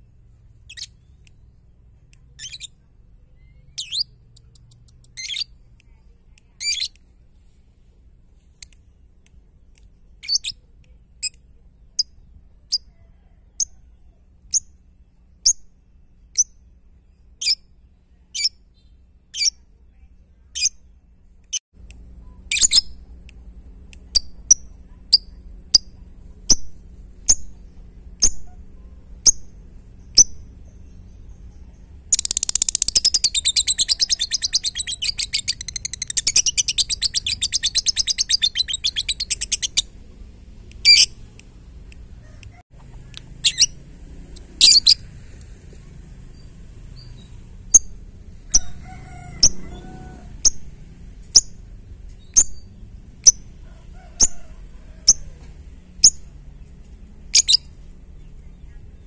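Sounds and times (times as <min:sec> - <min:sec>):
lovebird chirping and chattering: 0:00.5 - 0:01.6, 0:02.3 - 0:07.0, 0:10.2 - 0:10.6, 0:11.2 - 0:13.0, 0:13.6 - 0:14.8, 0:17.4 - 0:17.7, 0:18.3 - 0:19.6, 0:20.5 - 0:20.8, 0:22.4 - 0:23.2, 0:24.0 - 0:45.1, 0:46.2 - 0:53.6, 0:54.2 - 0:55.3, 0:55.9 - 0:59.0.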